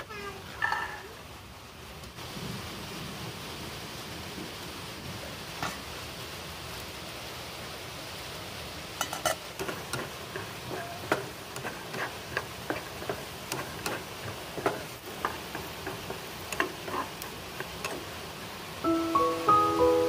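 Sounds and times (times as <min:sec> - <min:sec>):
steady frying hiss: 0:00.0 - 0:20.0
spatula tapping frying pan: 0:09.0 - 0:18.2.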